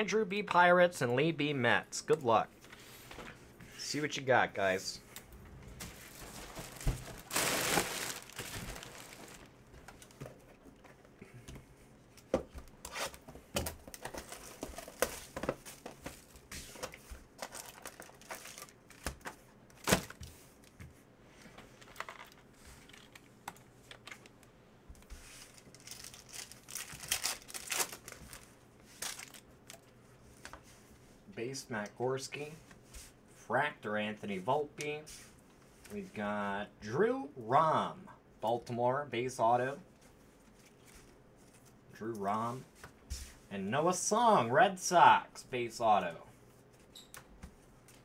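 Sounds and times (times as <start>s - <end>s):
wrappers crinkling and tearing: 5.9s - 10.2s, 17.4s - 19.2s, 25.2s - 29.8s.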